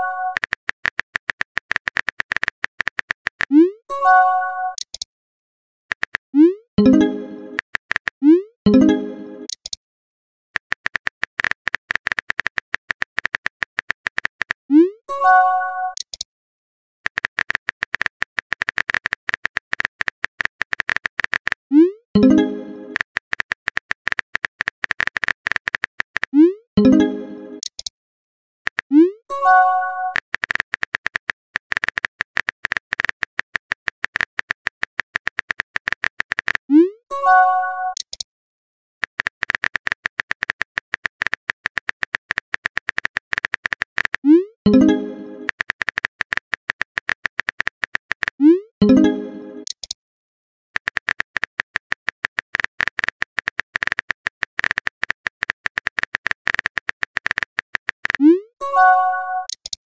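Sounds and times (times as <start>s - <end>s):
keyboard typing clicks: 0.0s - 3.8s, 4.7s - 5.1s, 5.9s - 9.8s, 10.6s - 14.6s, 15.8s - 16.3s, 17.1s - 27.9s, 28.7s - 36.8s, 37.9s - 38.3s, 39.0s - 50.0s, 50.8s - 59.8s
multi-tone phone chime: 58.6s - 59.5s.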